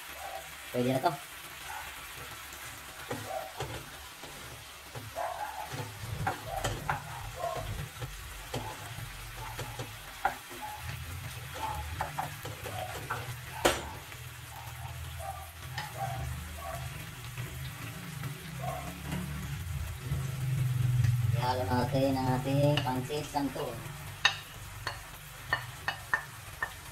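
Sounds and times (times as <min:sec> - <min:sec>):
food sizzling in a pan: 0:00.0 - 0:26.9
wooden spoon scraping a pan: 0:02.1 - 0:14.7.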